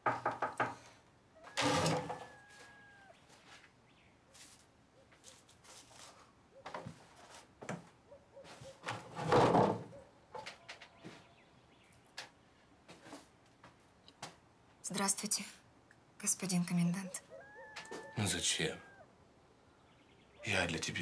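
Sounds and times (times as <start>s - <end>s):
wooden door creaking: 1.5s - 2.4s.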